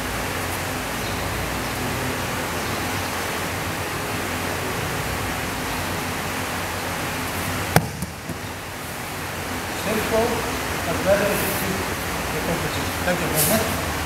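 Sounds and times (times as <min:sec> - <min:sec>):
steady background hiss: 0:00.0 - 0:14.0
body slapping onto mat: 0:07.7 - 0:08.4
soft thuds: 0:07.8 - 0:08.5.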